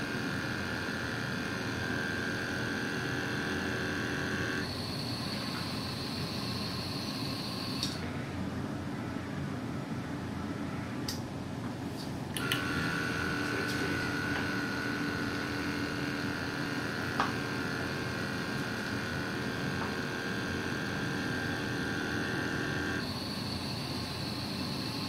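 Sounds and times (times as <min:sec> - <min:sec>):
machine drive whining: 0:00.0 - 0:08.1, 0:12.3 - 0:25.0.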